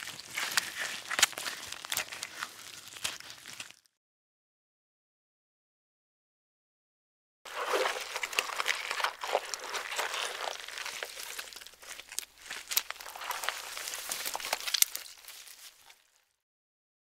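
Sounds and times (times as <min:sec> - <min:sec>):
donkey crunching snow and grass: 0:00.0 - 0:03.9, 0:07.5 - 0:16.4.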